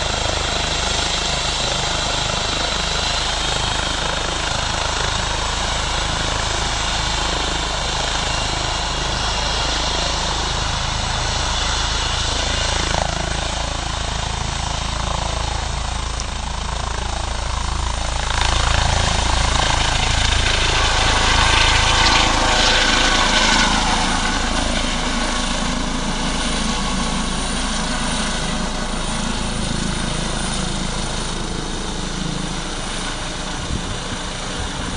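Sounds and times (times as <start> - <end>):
helicopter engine and rotor: 0.0 - 34.9.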